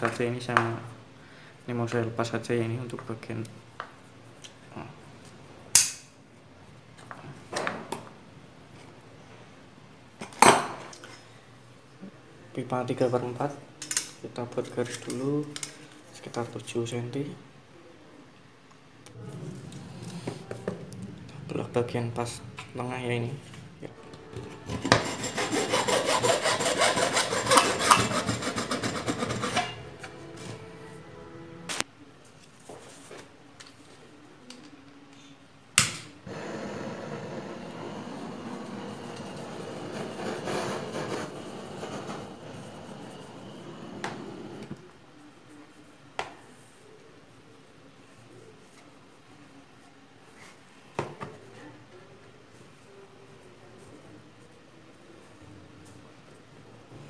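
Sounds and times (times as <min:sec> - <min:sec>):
hacksaw cutting plastic pipe: 0:24.6 - 0:29.8.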